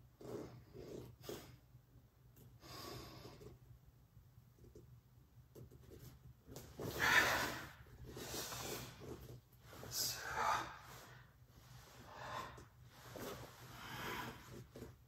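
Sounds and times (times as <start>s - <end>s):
person breathing: 2.6s - 3.6s, 6.8s - 14.9s.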